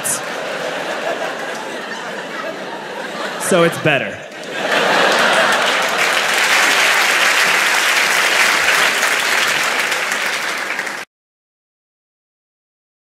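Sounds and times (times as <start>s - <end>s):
audience applauding: 4.3s - 11.1s.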